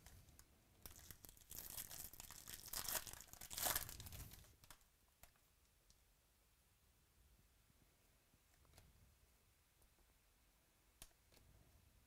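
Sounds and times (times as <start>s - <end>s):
foil wrapper tearing and crinkling: 0.8s - 4.4s.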